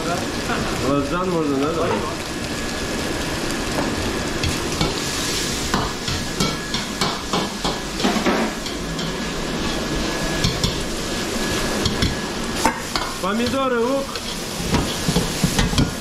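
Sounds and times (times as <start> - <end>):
food sizzling: 0.0 - 16.0.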